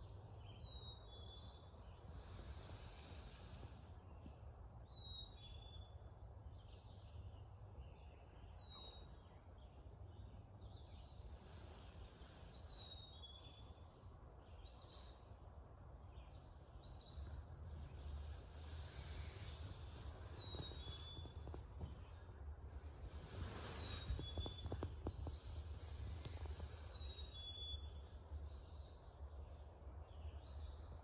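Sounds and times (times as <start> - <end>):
birds chirping: 16.1 - 28.1.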